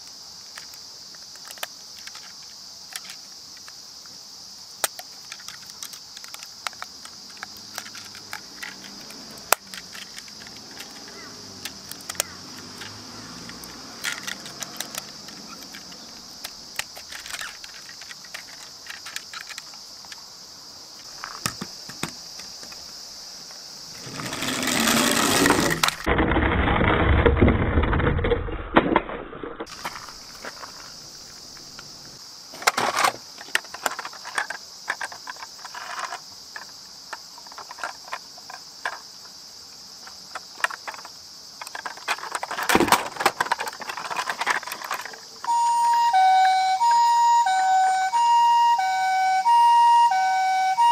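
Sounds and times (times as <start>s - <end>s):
plastic toys clicking and knocking: 0.4s - 3.8s, 4.8s - 20.2s, 21.2s - 22.9s, 24.0s - 28.3s, 32.5s - 39.1s, 40.0s - 45.6s.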